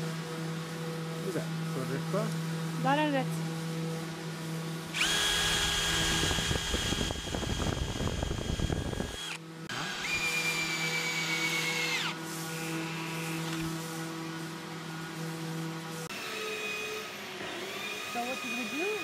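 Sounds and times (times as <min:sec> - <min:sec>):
drill bit cutting wood: 0:04.9 - 0:13.6, 0:16.2 - 0:19.0
cordless drill motor whine: 0:04.9 - 0:13.8, 0:16.1 - 0:19.0.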